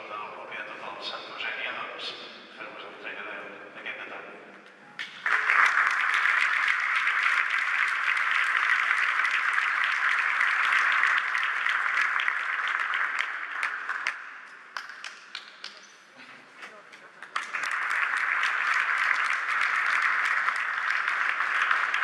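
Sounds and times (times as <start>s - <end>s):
audience applauding: 5.0s - 15.8s, 17.2s - 22.0s.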